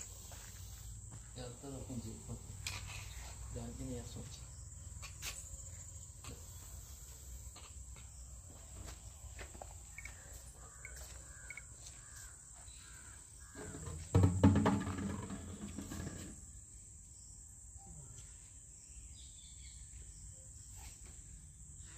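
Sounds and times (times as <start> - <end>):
insect chirring: 0.0 - 13.6.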